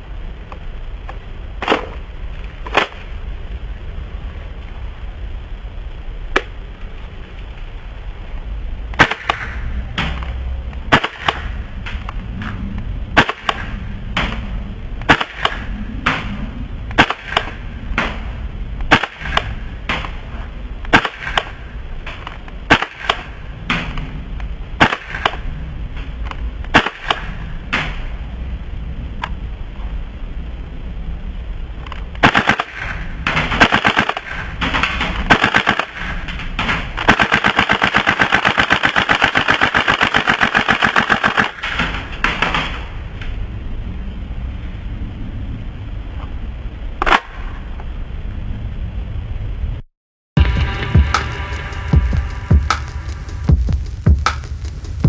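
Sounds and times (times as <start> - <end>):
airsoft gun shots: 17.0 - 18.2, 20.9 - 21.6, 24.8 - 25.4.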